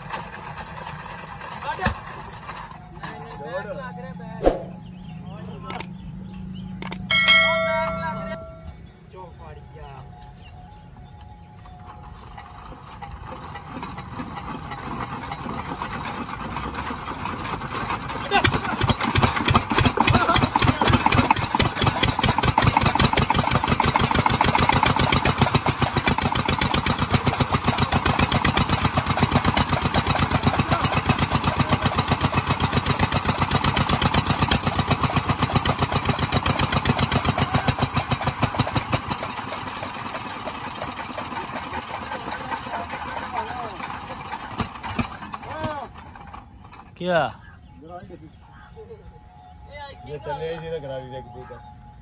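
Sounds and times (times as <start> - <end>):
single-cylinder diesel engine running: 0.0 - 48.7.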